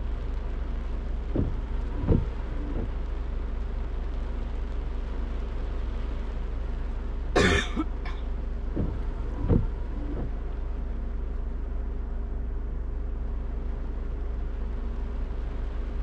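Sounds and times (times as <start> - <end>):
soft low thumps: 0.0 - 4.8, 7.4 - 15.2
car driving hum: 0.0 - 16.0.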